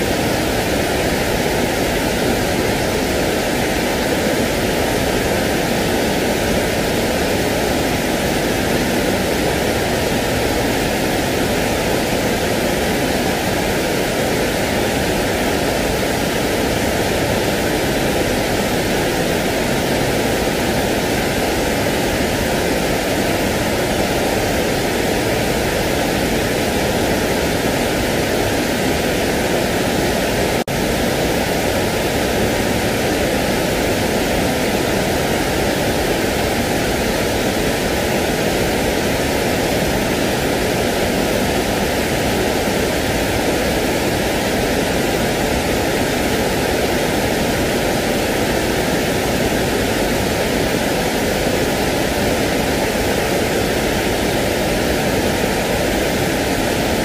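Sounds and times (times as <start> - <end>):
steady pink noise: 0.0 - 57.0.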